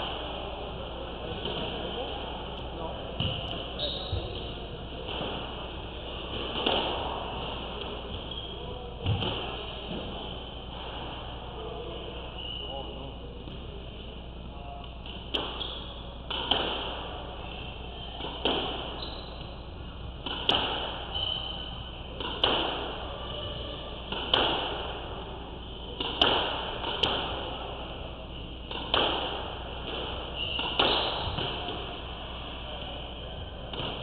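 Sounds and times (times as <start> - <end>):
squash ball hitting rackets and walls: 3.2 - 8.4, 9.0 - 10.2, 15.0 - 17.3, 18.2 - 25.2, 25.9 - 32.2, 33.4 - 34.0.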